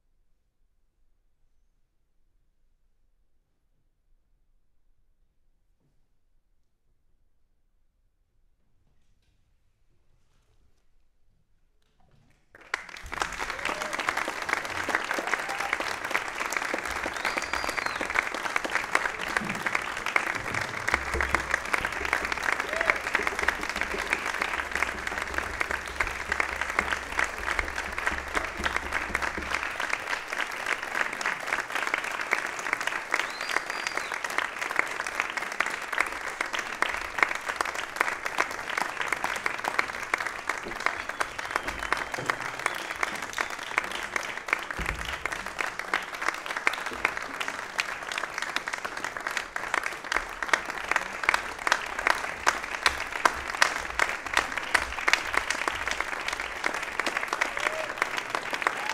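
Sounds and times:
audience applauding: 12.5s - 58.9s.

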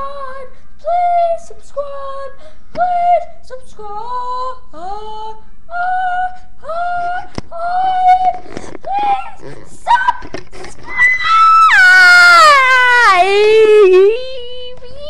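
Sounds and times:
high-pitched voice singing: 12.9s - 15.0s.

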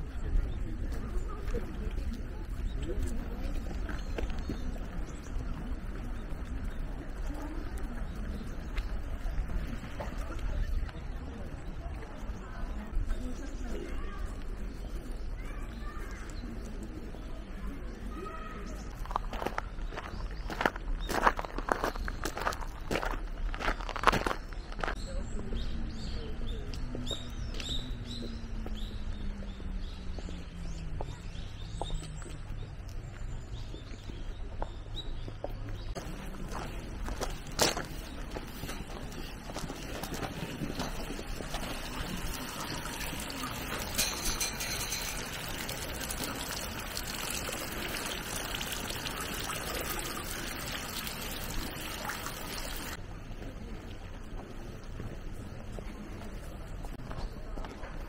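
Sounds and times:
small birds chirping: 0.0s - 53.0s
water splashing into stone basin: 36.0s - 53.0s.

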